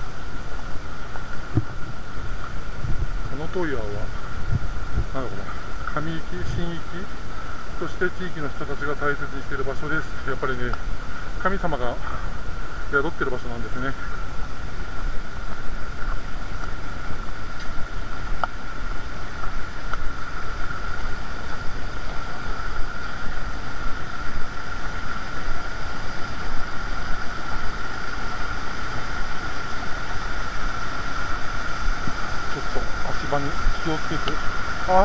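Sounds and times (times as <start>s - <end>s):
stream water rushing over rocks: 0.0s - 35.0s.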